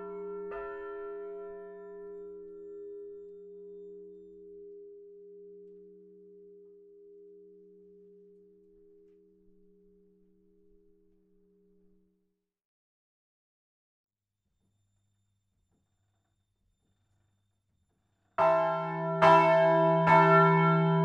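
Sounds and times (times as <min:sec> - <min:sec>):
church bell humming: 0:00.0 - 0:03.2, 0:18.4 - 0:21.0.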